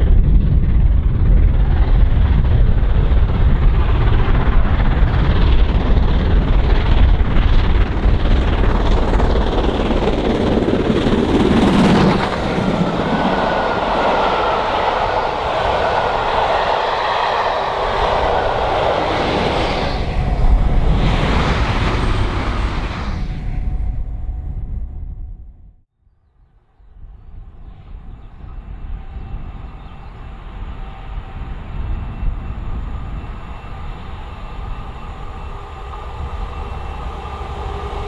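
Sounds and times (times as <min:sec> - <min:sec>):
steam locomotive rumbling past: 0:00.1 - 0:24.8, 0:27.1 - 0:38.0
train coaches rushing by: 0:08.4 - 0:23.7, 0:29.0 - 0:38.0.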